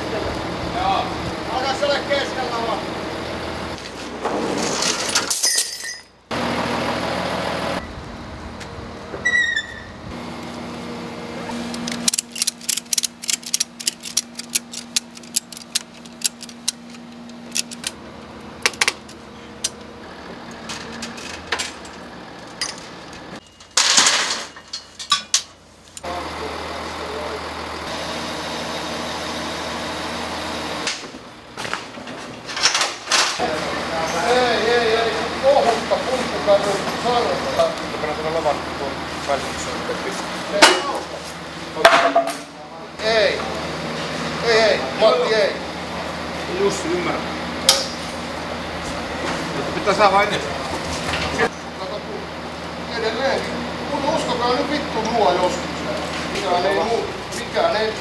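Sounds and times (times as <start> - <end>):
truck engine running: 0.0 - 4.2, 6.2 - 9.3, 9.9 - 23.5, 25.5 - 32.5
ratchet strap clicking: 11.8 - 18.0.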